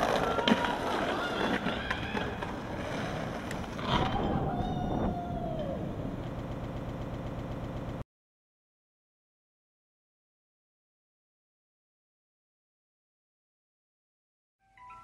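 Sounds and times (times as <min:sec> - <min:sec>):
street traffic: 0:00.0 - 0:08.0
man cheering shout: 0:04.0 - 0:06.0.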